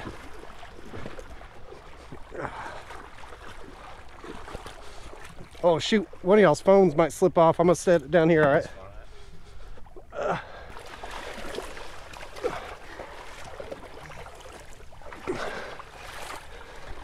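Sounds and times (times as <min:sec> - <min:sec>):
people gasping and breathing heavily: 0:00.9 - 0:03.6, 0:04.3 - 0:05.5, 0:08.6 - 0:13.6, 0:15.1 - 0:17.0.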